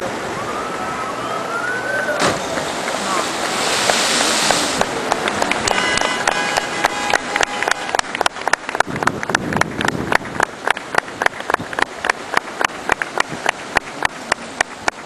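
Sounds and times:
spectators clapping: 3.8 - 15.0.

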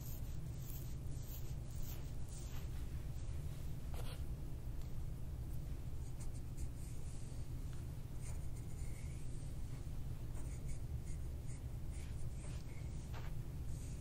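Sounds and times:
tool scraping over hair: 0.0 - 2.7
steady low hum: 0.0 - 14.0.

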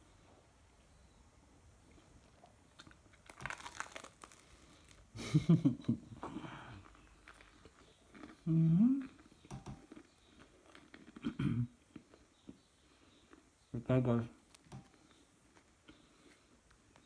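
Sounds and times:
man chewing food: 1.8 - 13.7
voiced sounds through full mouth: 8.3 - 9.4
man humming mmm: 8.4 - 9.2.

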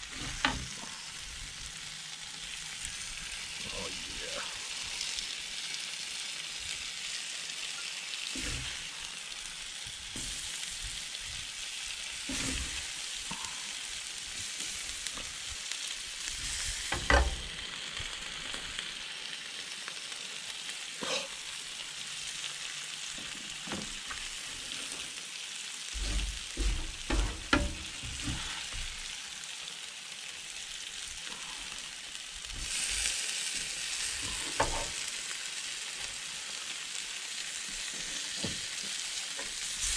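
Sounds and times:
meat and vegetables sizzling on griddle: 0.0 - 39.9
metal spatula scraping and knocking: 26.0 - 28.6.

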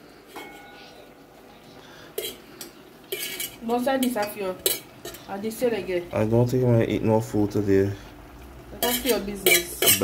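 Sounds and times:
metal pots and fork clinking: 0.3 - 1.0, 2.1 - 5.3, 8.8 - 10.0.

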